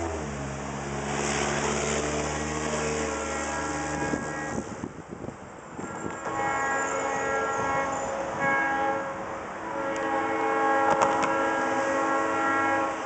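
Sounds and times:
locomotive air horn blasts: 2.4s - 4.9s, 5.8s - 13.0s.

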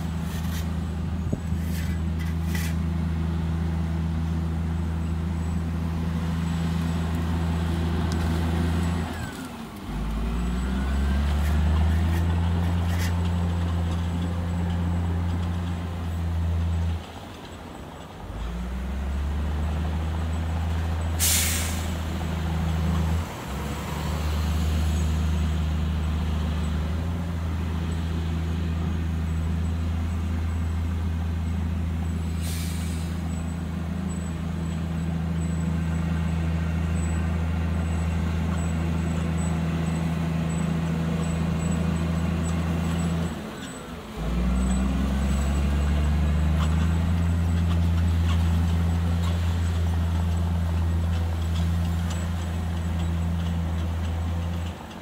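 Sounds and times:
diesel engine running: 0.0s - 17.3s, 18.2s - 55.0s
air release hisses: 21.2s - 22.0s, 32.3s - 33.2s.

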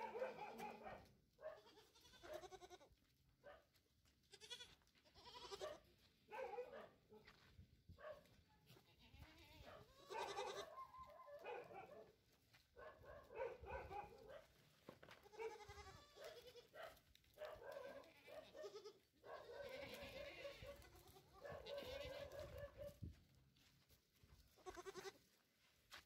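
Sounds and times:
goats bleating: 1.6s - 2.9s, 4.2s - 5.8s, 8.8s - 10.8s, 15.2s - 16.7s, 17.9s - 22.4s, 24.6s - 25.2s.

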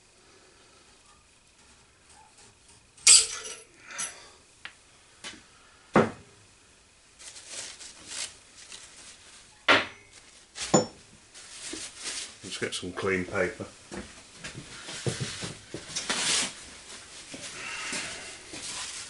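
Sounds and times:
metal tools clanking: 3.0s - 4.2s
shop rags rustling: 7.1s - 9.5s, 10.1s - 19.0s.

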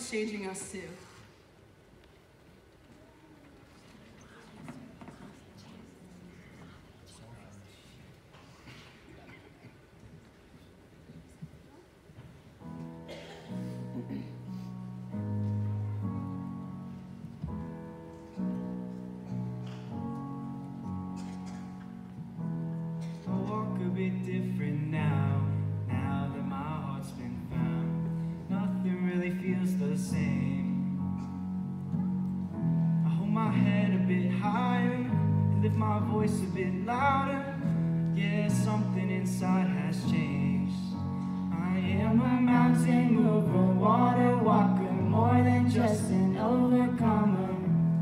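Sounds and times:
instrumental accompaniment: 12.6s - 48.0s.

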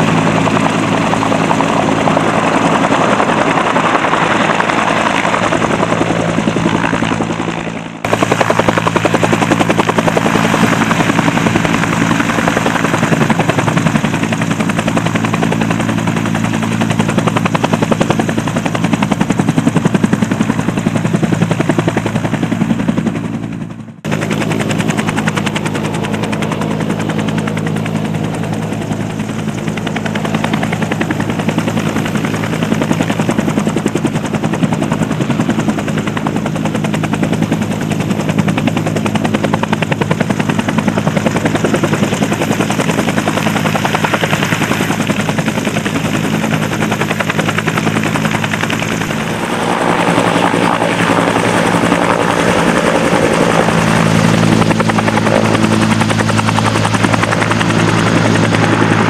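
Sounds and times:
helicopter rotor beating: 0.0s - 59.0s
turbine hum: 46.4s - 59.0s.

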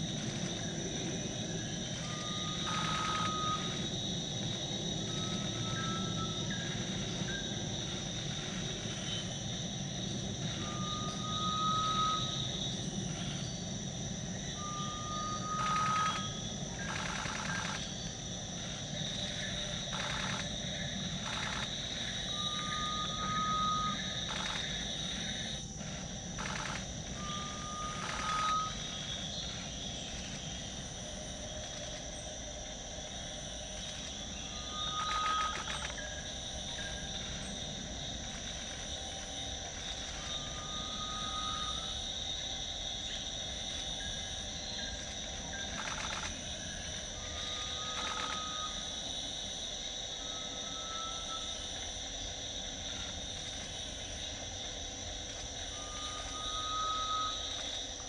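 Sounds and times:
forest insects drone: 0.0s - 58.0s
bird rising whistle: 2.0s - 3.8s, 5.0s - 7.4s, 10.5s - 13.4s, 14.6s - 17.8s, 22.3s - 24.6s, 26.4s - 29.0s, 34.4s - 37.1s, 40.1s - 42.1s, 45.8s - 48.9s, 55.7s - 57.6s.

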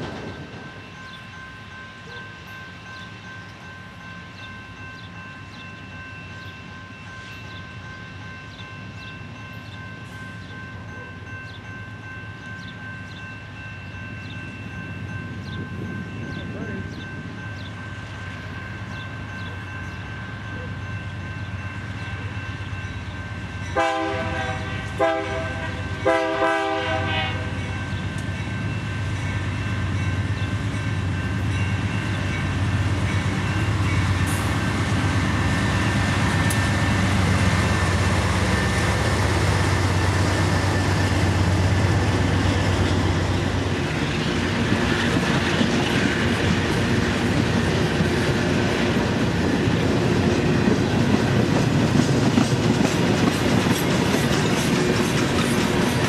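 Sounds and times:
diesel locomotive engines: 0.0s - 56.0s
train horn blasts: 23.7s - 27.7s
wheels clacking on rail joints: 30.3s - 56.0s.

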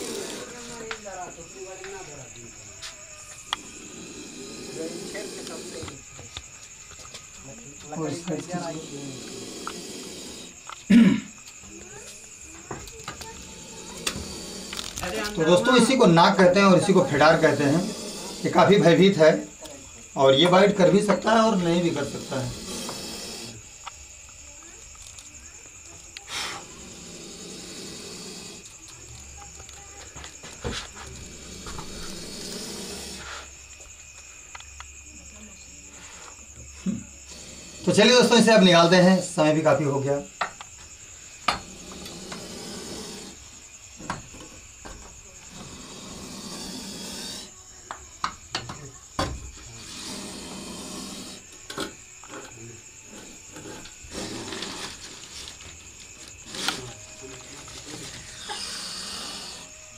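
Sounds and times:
crickets trilling: 0.0s - 59.9s
short hissing bursts: 8.5s - 10.6s, 21.3s - 23.7s, 26.2s - 28.6s, 58.3s - 59.7s
metal scraping against bamboo: 49.7s - 59.6s.

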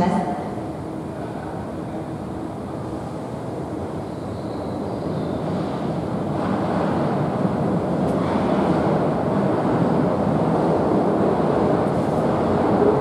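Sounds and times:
train wheels rumbling on rails: 0.0s - 13.0s.

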